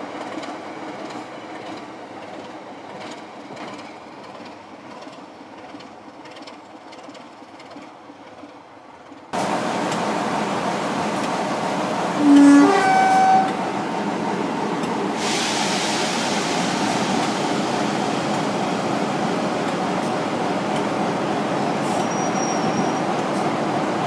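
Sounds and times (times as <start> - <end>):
two-tone locomotive horn: 12.2 - 13.7
hissing rush: 13.6 - 22.1.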